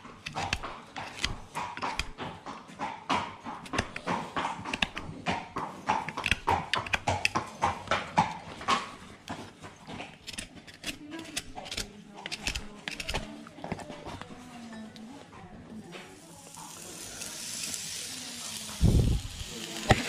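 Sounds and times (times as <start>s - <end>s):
hoof knife scraping hoof: 0.0s - 14.4s.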